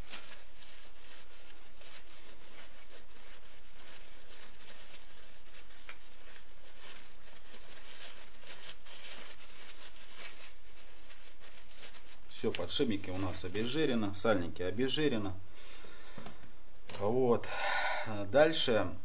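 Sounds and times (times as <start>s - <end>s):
paper napkin rubbing metal: 0.0s - 14.1s.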